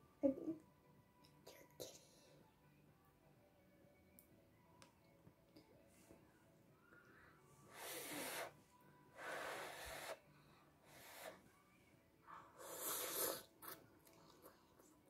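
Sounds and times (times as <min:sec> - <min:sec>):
child slurping noodles: 0:12.6 - 0:13.8.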